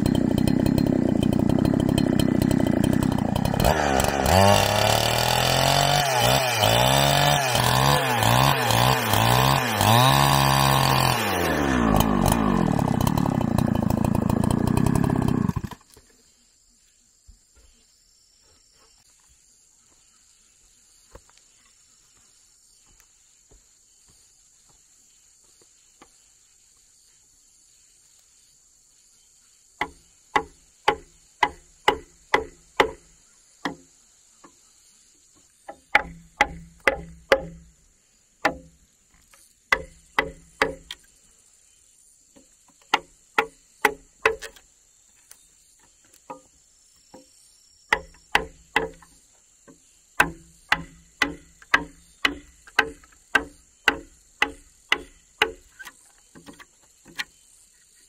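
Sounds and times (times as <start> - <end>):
high insect drone: 15.0 - 58.0
tool striking wooden post: 29.8 - 34.6, 35.6 - 37.7, 38.4 - 38.8, 39.7 - 41.1, 42.4 - 44.6, 45.8 - 57.4.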